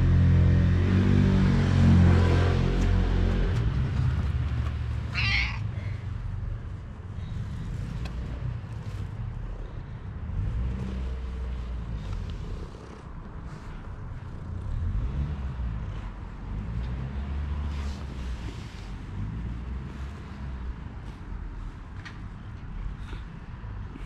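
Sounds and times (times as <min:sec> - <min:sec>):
cat purring: 0:12.0 - 0:14.8.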